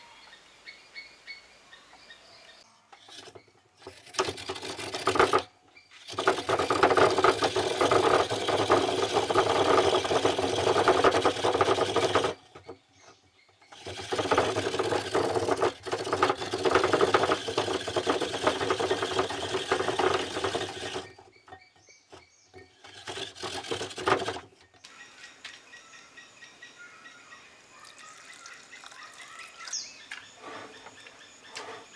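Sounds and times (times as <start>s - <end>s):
coconut scraper grating: 3.0s - 12.8s, 13.6s - 24.5s.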